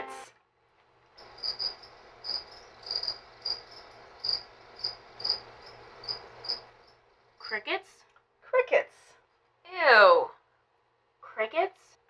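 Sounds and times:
cricket chirping: 1.2 - 7.6.

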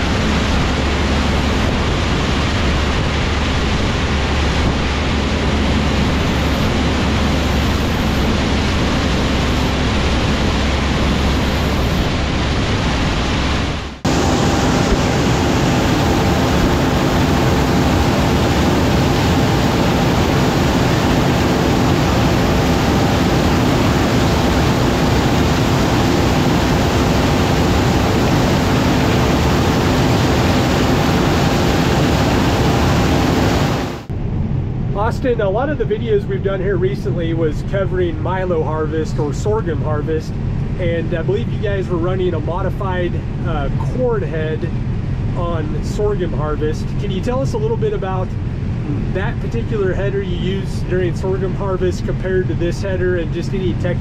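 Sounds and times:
loud farm machinery noise: 0.0 - 34.1
engine drone with held tones: 0.0 - 54.0.

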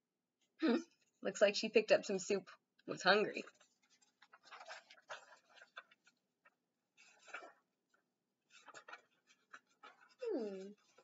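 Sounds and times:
book pages rustling: 3.1 - 11.0.

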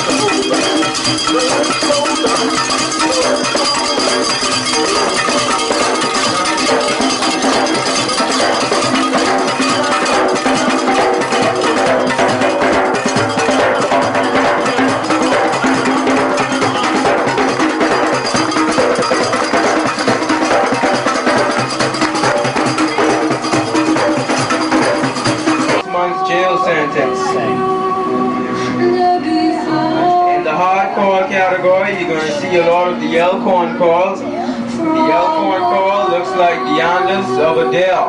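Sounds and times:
hand drums and cowbells rhythm: 0.0 - 25.9
pitched instruments playing: 0.0 - 38.0.

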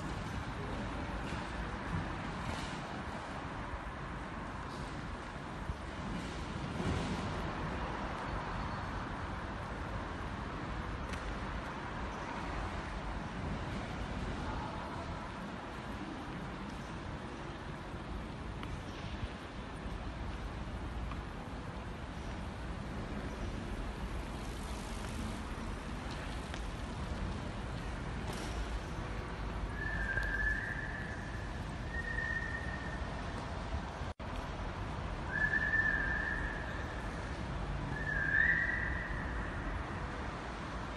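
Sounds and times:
distant traffic rumble: 0.0 - 40.9
high whistle-like tone: 29.7 - 33.2, 35.3 - 36.8, 37.9 - 39.4.

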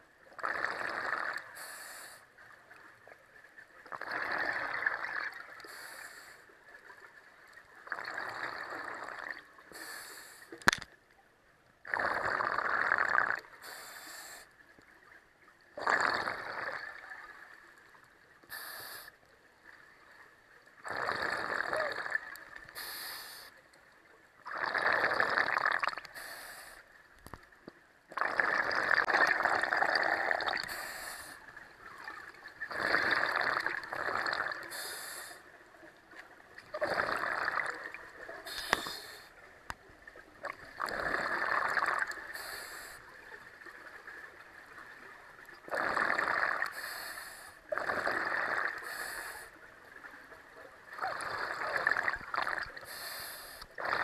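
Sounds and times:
exhaled bubbles underwater: 0.3 - 1.6, 3.8 - 6.2, 6.8 - 9.6, 11.9 - 13.8, 15.7 - 19.0, 19.6 - 22.9, 24.0 - 26.6, 28.1 - 35.4, 36.1 - 54.0
regulator breathing hiss: 1.6 - 2.3, 5.6 - 6.4, 9.7 - 10.6, 13.6 - 14.5, 18.5 - 19.2, 22.7 - 23.5, 26.1 - 26.9, 30.6 - 31.4, 34.7 - 35.4, 38.4 - 39.3, 42.3 - 43.0, 46.7 - 47.6, 48.8 - 49.6, 52.8 - 53.6.

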